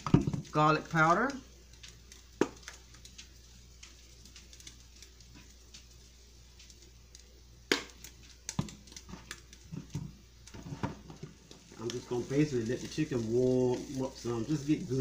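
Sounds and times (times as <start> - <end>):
seasoning shaken from bottle: 11.7 - 15.0.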